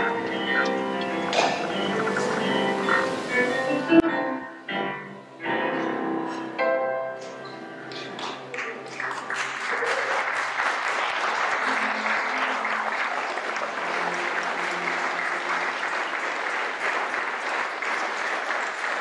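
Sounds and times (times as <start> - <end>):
audience applauding: 0.0 - 3.7, 7.9 - 19.0.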